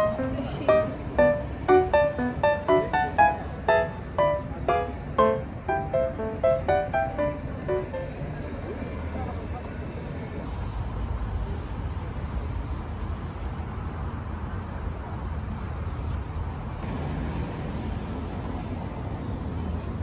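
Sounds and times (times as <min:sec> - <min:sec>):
low city and beachfront rumble: 0:00.0 - 0:20.0.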